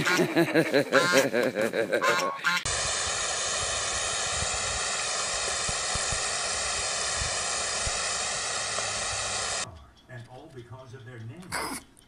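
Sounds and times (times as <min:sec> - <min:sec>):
water spraying hiss: 0:02.7 - 0:09.6.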